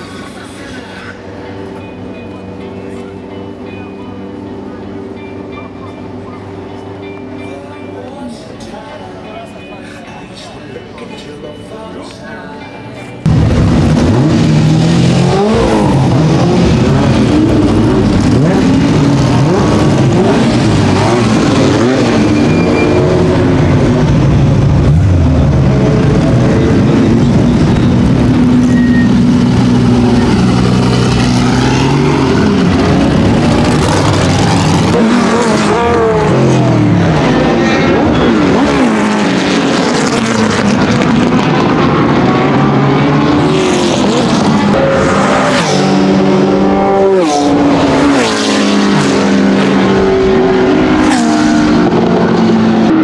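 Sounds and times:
racing car engines revving past: 13.2s - 53.0s.

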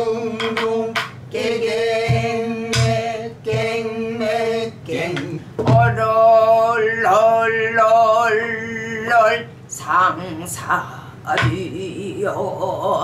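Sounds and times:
woman chanting drum syllables: 0.0s - 13.0s
low barrel drum strokes: 2.0s - 3.8s.

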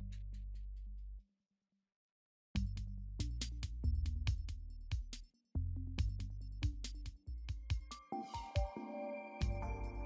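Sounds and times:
electronic music with drum-machine beat: 6.0s - 10.0s.

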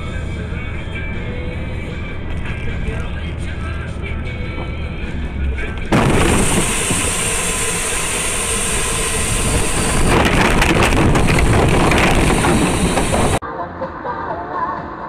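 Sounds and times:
road and engine noise: 0.0s - 15.0s
vehicle crashing with scraping rumble: 3.8s - 13.4s.

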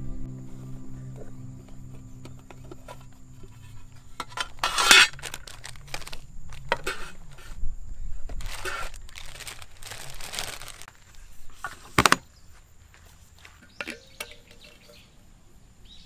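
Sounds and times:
plastic bags crinkling: 4.3s - 7.4s, 8.3s - 11.1s.

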